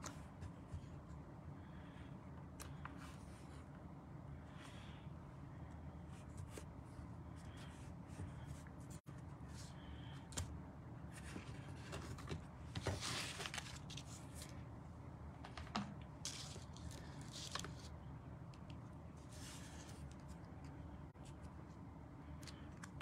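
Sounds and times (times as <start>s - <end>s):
paper rustling and sliding: 11.1s - 14.5s.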